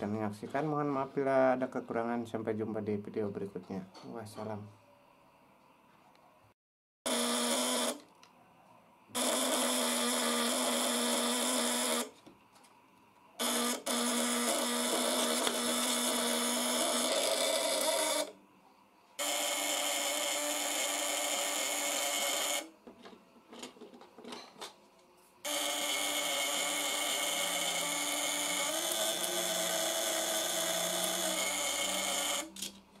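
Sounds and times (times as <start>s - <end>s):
electric contact breaker buzzing: 7.0s - 8.1s, 9.1s - 12.2s, 13.4s - 18.4s, 19.2s - 22.8s, 25.4s - 32.9s.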